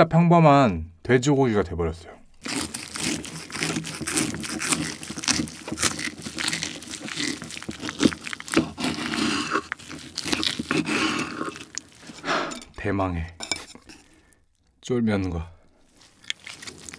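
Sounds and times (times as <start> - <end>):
knife sawing crackling pork skin: 2.4 - 12.7, 16.3 - 16.9.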